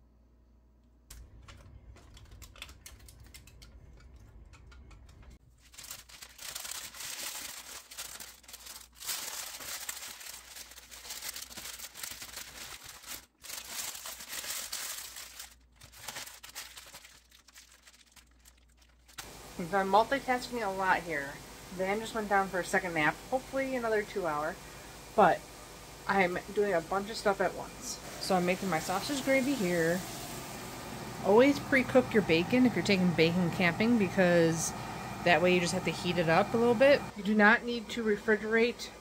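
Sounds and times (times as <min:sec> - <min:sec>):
parchment paper crinkling: 0:01.2 - 0:19.4.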